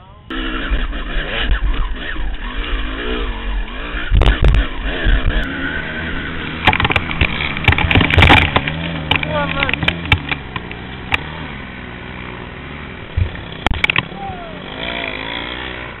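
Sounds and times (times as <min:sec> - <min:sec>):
dirt bike engine revving: 0:00.3 - 0:16.0
bike knocking and rattling over rocks: 0:06.4 - 0:11.3, 0:13.1 - 0:14.1.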